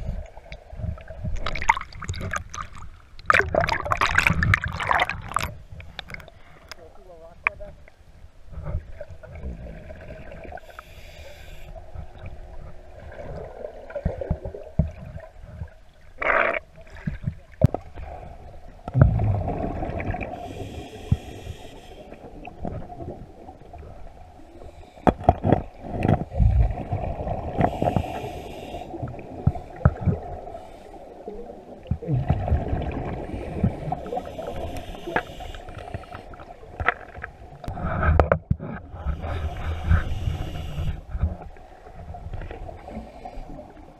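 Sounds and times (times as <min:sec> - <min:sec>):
exhaled bubbles gurgling: 0:00.0 - 0:06.3, 0:08.6 - 0:11.0, 0:11.8 - 0:43.9
regulator inhalation hiss: 0:10.6 - 0:11.8, 0:20.3 - 0:22.2, 0:27.6 - 0:29.0, 0:33.4 - 0:36.4, 0:39.0 - 0:41.1.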